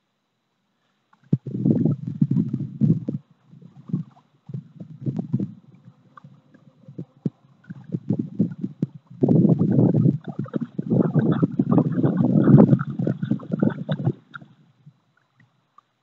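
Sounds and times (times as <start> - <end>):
wind buffeting microphone: 1.4 - 6.0, 6.8 - 14.4.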